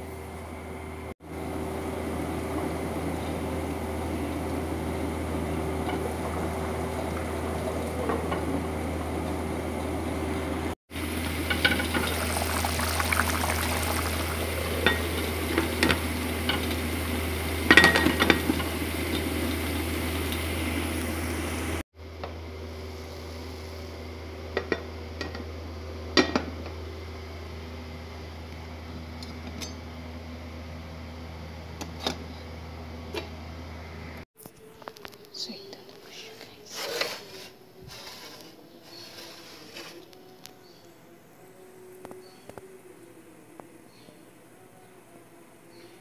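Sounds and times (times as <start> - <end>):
kitchen hum: 0.0 - 45.9
covered pot simmering: 1.4 - 21.8.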